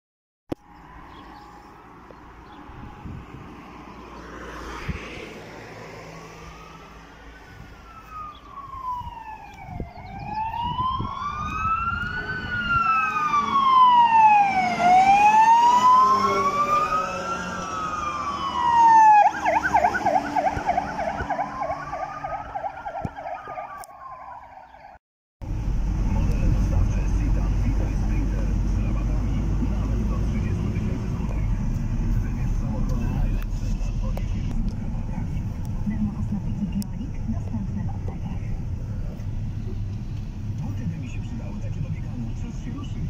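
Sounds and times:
fire engine siren wailing: 6.0s - 25.0s
siren fast yelp: 6.3s - 25.0s.

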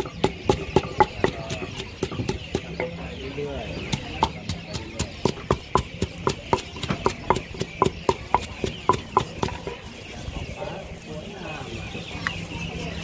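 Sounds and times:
pestle pounding in mortar: 0.0s - 3.0s, 3.8s - 9.8s.

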